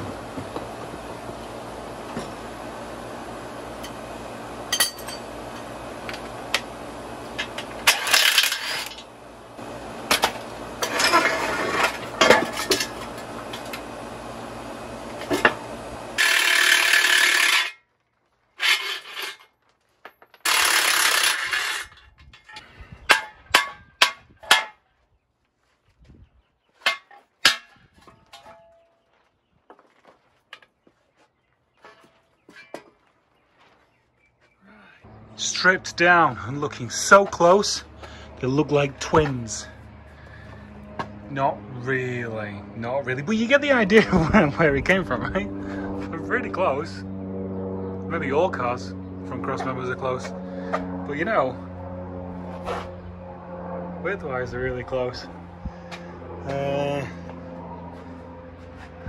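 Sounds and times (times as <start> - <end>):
steady hum: 0.0 - 17.8, 34.7 - 59.0
impact wrench bursts: 16.2 - 17.8, 20.4 - 22.0
ratchet rasping: 16.2 - 17.8, 20.4 - 21.9.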